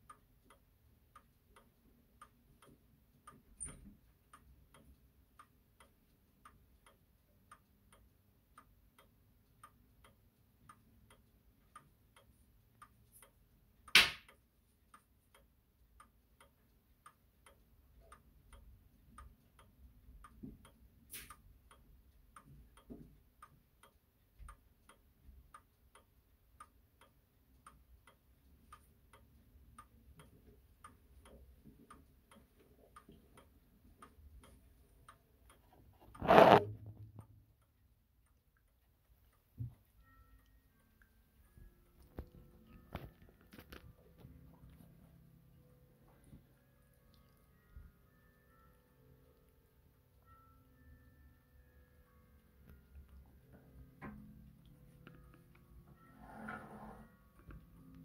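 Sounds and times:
wall clock ticking: 0:00.0 - 0:58.0
sharp knock: 0:14.0 - 0:14.2.

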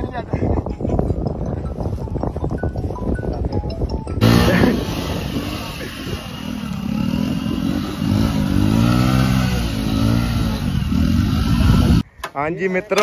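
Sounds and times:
motorcycle engine revving: 0:04.2 - 0:12.0.

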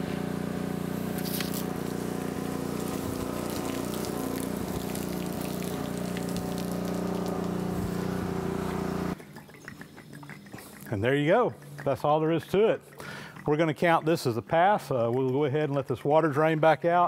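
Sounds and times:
pressure washer engine running: 0:00.0 - 0:09.2
water splashing onto concrete: 0:01.2 - 0:08.1.

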